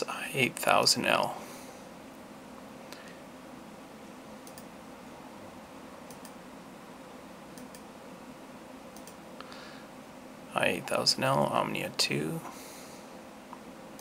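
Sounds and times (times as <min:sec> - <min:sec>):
steady low hum: 0:00.0 - 0:14.0
computer mouse clicks: 0:04.4 - 0:04.7, 0:06.1 - 0:06.4, 0:07.6 - 0:07.9, 0:09.0 - 0:09.2.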